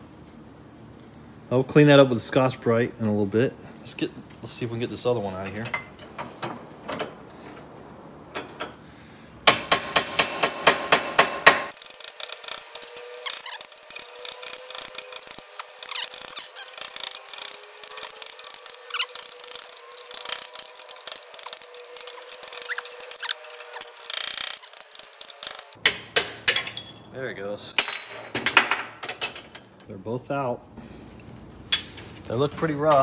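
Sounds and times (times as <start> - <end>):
vise squealing and creaking: 11.8 - 25.8.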